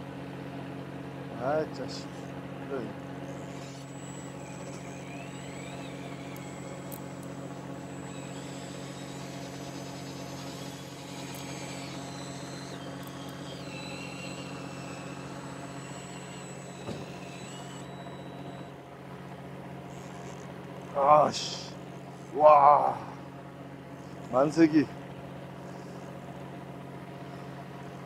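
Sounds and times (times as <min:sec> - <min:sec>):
boat machinery hum: 0:00.0 - 0:28.0
faint high whine: 0:01.3 - 0:18.9.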